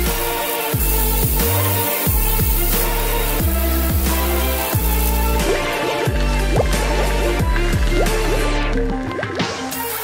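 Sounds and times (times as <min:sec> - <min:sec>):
electronic music with heavy bass: 0:03.8 - 0:10.0.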